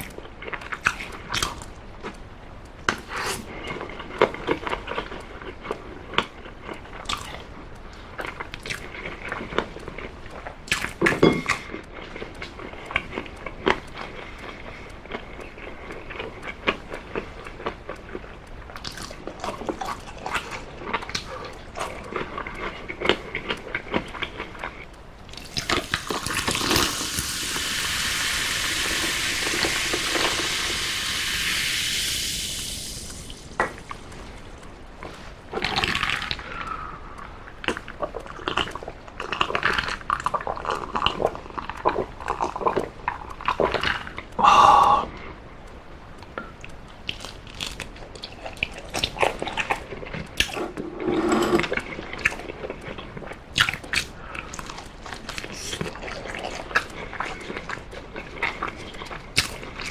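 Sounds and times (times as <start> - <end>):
chewing clicks: 0.0 - 27.0, 35.5 - 51.0, 51.6 - 59.9
soda pouring and fizzing: 25.8 - 34.1
person gulping drink: 35.5 - 45.4.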